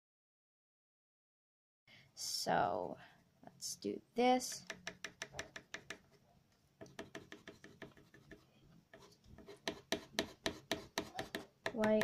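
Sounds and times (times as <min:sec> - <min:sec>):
colored pencil scratching on paper: 0:06.8 - 0:12.0.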